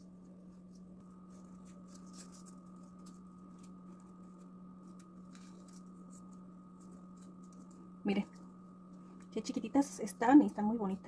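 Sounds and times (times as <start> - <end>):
paper rustling and ticking: 0.0 - 8.5
steady hum: 0.0 - 11.0.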